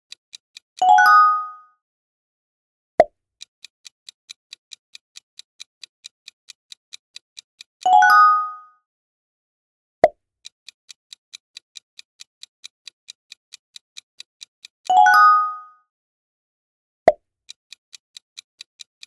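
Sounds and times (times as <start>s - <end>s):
countdown clock ticking: 3.4s - 8.7s, 10.4s - 15.7s, 17.5s - 19.0s
bright multi-tone chime: 15.0s - 15.8s.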